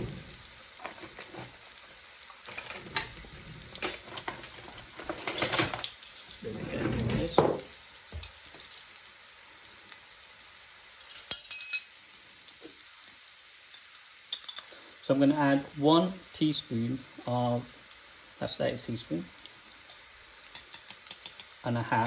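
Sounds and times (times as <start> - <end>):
pan and utensil clatter: 0.0 - 1.7, 2.4 - 9.0, 11.0 - 12.0, 13.7 - 14.8, 19.8 - 21.6
chicken sizzling in a pan: 0.0 - 22.0
light clinks: 11.0 - 12.0.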